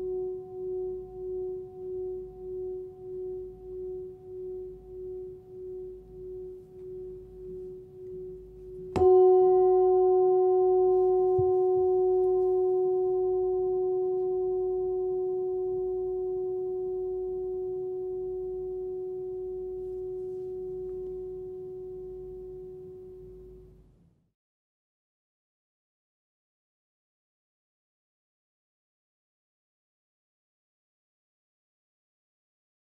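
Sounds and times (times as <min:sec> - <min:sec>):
singing bowl ringing: 0:00.0 - 0:23.6
singing bowl strike: 0:00.0 - 0:23.6.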